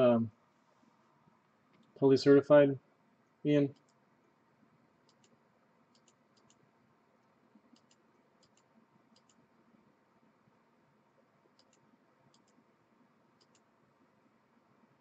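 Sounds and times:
faint light clicks: 7.2 - 9.4, 13.4 - 13.7.

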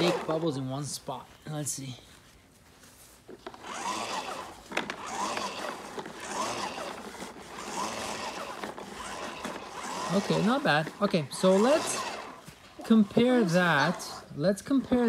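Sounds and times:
toy lawn mower rattling clatter: 0.0 - 0.5, 3.4 - 15.0.

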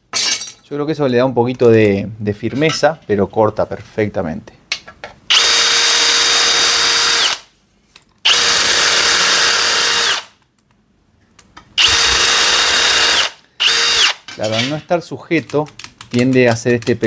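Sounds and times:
drill with shear cutting sheet metal: 5.3 - 7.4, 8.3 - 10.3, 11.8 - 14.2.

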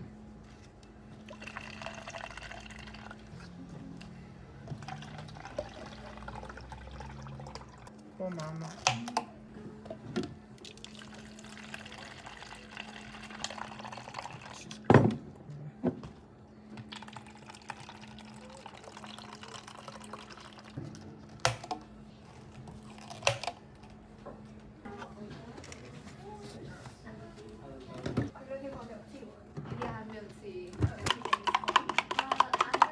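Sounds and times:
liquid pouring into plastic cups: 1.2 - 3.5, 4.6 - 7.9, 10.6 - 14.8, 16.8 - 21.9.

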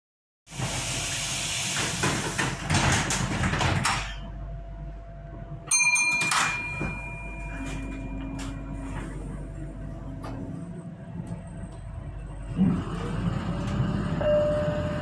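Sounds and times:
loud air hiss: 0.5 - 2.5.

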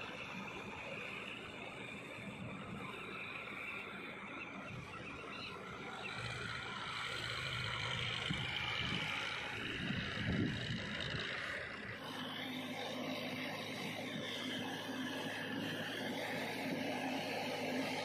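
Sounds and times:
tractor diesel engine running: 5.6 - 18.0.

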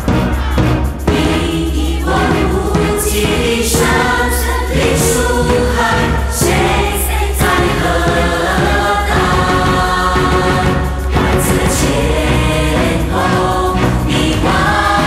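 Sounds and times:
choir singing with instruments: 0.0 - 15.0
deep bass: 0.0 - 15.0.

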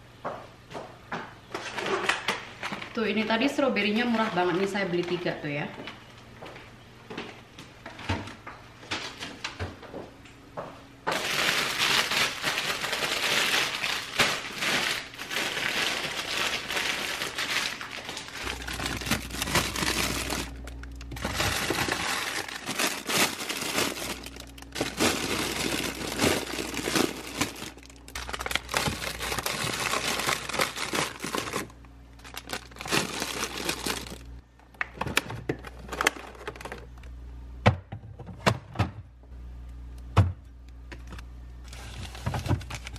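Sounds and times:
plastic bags crinkling: 11.1 - 34.4, 35.6 - 37.0, 41.6 - 42.9.

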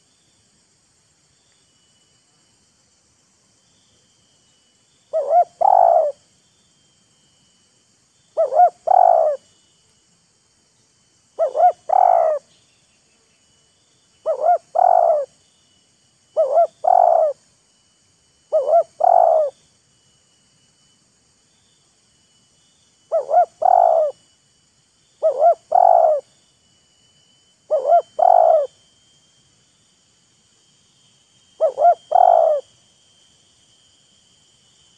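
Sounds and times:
dove cooing: 5.1 - 6.2, 8.4 - 9.4, 11.4 - 12.4, 14.2 - 15.3, 16.4 - 17.4, 18.5 - 19.6, 23.1 - 24.2, 25.2 - 26.2, 27.7 - 28.7, 31.6 - 32.6.

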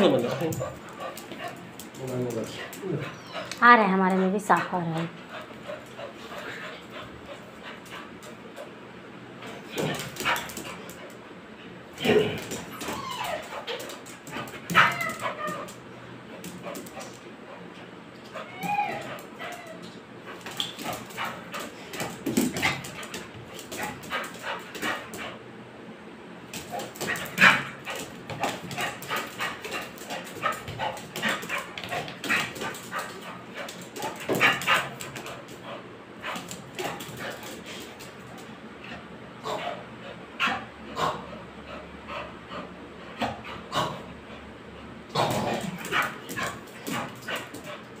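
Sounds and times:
dog whining: 2.8 - 3.6, 12.1 - 13.8, 14.7 - 15.8, 18.2 - 20.0
dog barking and yipping: 14.4 - 15.8.

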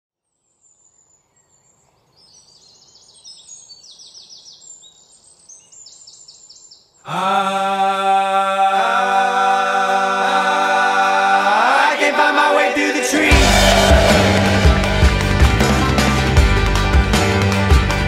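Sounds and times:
faint outdoor background noise: 0.2 - 9.6
birds chirping: 0.3 - 7.0
choir singing held chord: 7.1 - 16.8.

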